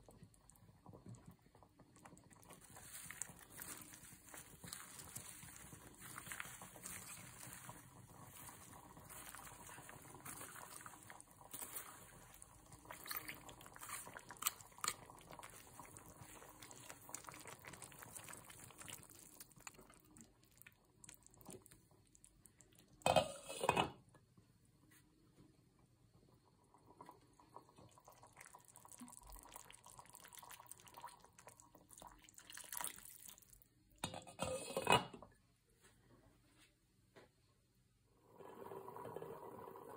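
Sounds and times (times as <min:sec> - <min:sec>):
soup bubbling: 0:00.0 - 0:23.8, 0:26.4 - 0:34.8
lettuce rustling: 0:02.6 - 0:19.3
glass lid clattering on pot: 0:23.0 - 0:24.0, 0:34.0 - 0:35.2.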